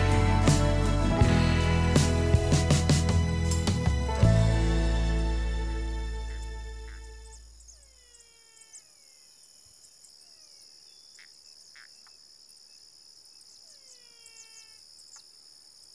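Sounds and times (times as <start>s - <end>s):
background music: 0.0s - 7.4s
crickets chirring: 6.2s - 15.9s.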